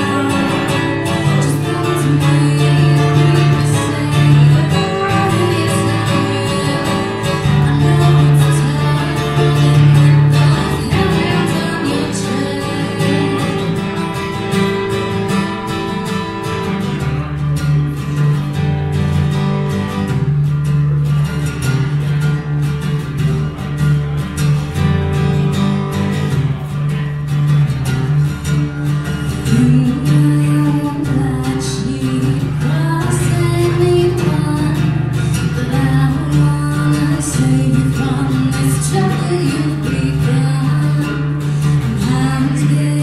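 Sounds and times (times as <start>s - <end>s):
woman singing: 0.0s - 16.3s, 29.3s - 43.0s
acoustic guitar playing: 0.0s - 43.0s.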